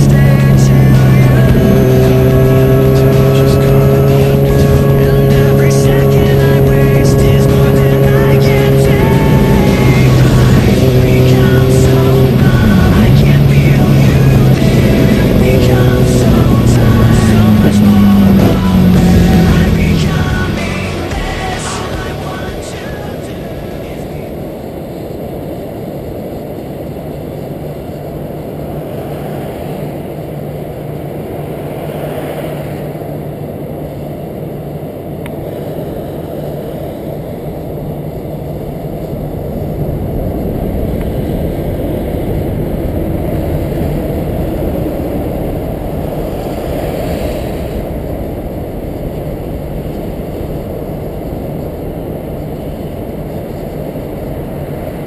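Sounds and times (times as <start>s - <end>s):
motorcycle engine rumble: 0.0s - 55.0s.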